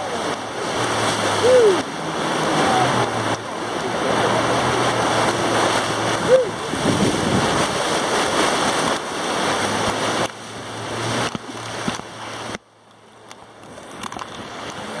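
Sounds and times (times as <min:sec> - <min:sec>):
whitewater rushing against raft: 0:00.0 - 0:15.0.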